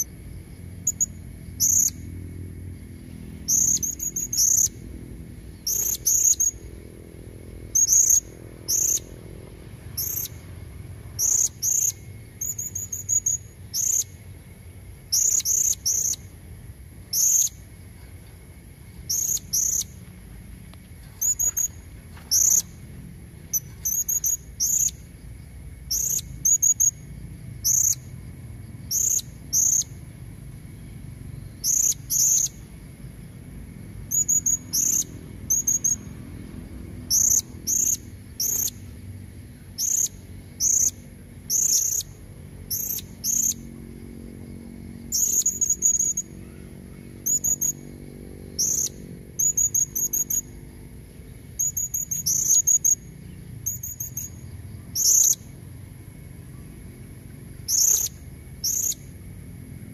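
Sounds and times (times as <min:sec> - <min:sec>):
parrot chirping: 0:03.4 - 0:04.8, 0:05.6 - 0:06.6, 0:07.7 - 0:09.1, 0:11.2 - 0:14.2, 0:21.2 - 0:22.8, 0:51.6 - 0:53.0.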